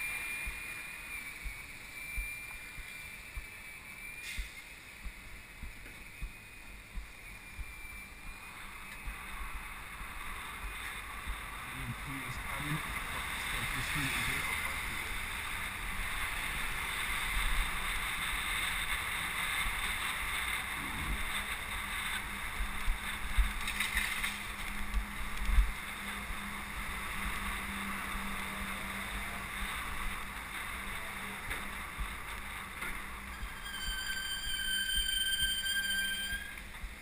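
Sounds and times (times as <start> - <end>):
wind and road noise: 0.0 - 37.0
low thumps: 4.4 - 8.3.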